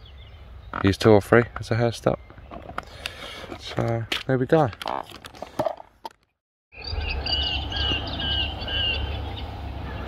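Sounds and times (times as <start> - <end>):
songbird singing: 0.0 - 4.3, 6.7 - 10.0.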